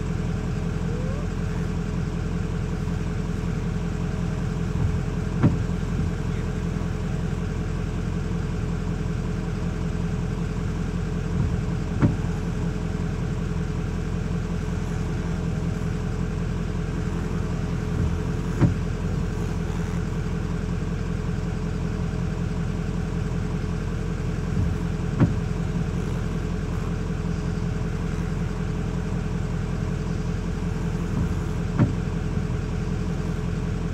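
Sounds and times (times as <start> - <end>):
engine idling: 0.0 - 33.9.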